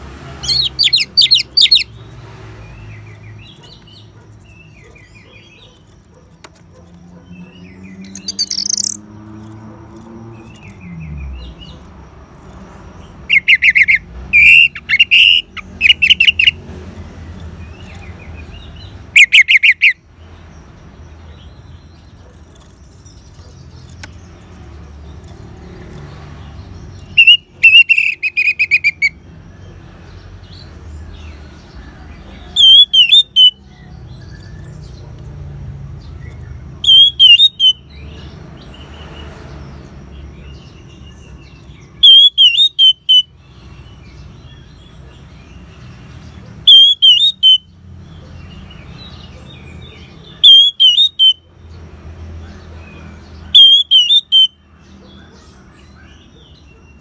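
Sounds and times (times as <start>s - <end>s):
thrush singing whistled phrases: 27.2s - 29.2s, 32.6s - 33.6s, 36.8s - 37.8s, 42.0s - 43.3s, 46.7s - 47.7s, 50.4s - 51.5s, 53.6s - 54.6s.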